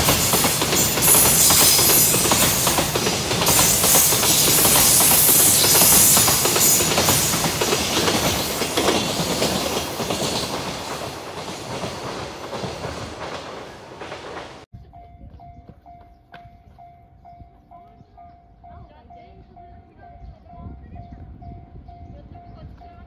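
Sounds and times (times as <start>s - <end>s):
train wheels clattering over rail joints: 0.0s - 14.6s.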